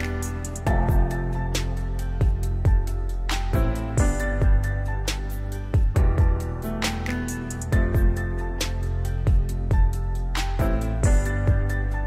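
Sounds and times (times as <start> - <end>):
low kick drum beat: 0.7 - 1.4, 2.2 - 4.9, 5.8 - 6.6, 7.7 - 8.3, 9.3 - 11.9.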